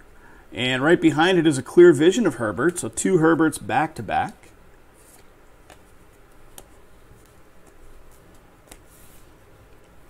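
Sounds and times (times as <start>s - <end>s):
cards sliding against each other: 5.0s - 9.4s
soft card clicks: 5.1s - 8.9s.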